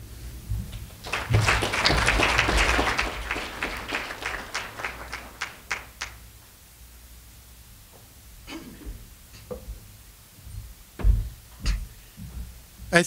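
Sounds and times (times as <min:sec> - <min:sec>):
audience applauding: 0:00.7 - 0:06.2.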